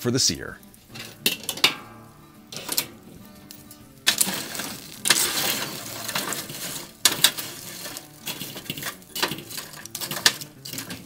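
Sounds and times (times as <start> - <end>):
tongs stirring charcoal: 0.5 - 11.0.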